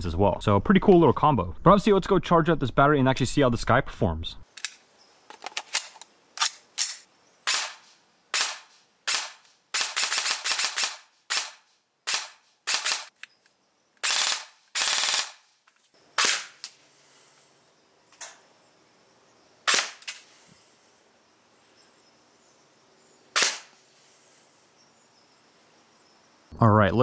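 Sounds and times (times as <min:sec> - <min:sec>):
airsoft gun firing shots: 0:06.8 - 0:13.1, 0:14.0 - 0:15.4, 0:16.2 - 0:16.7, 0:19.6 - 0:20.2, 0:23.4 - 0:23.7.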